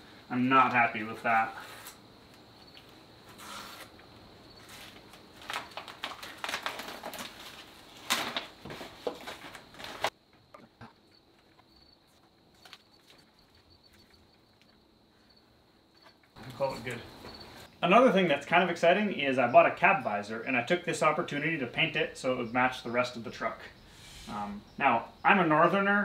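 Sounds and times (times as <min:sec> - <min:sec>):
masking paper crinkling and tearing: 0:04.6 - 0:10.2, 0:12.0 - 0:14.2.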